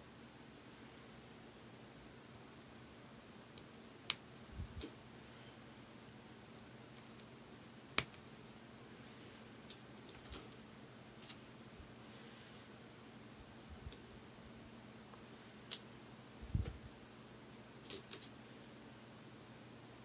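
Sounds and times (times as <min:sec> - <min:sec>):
plastic blocks clicking: 0:17.8 - 0:18.3.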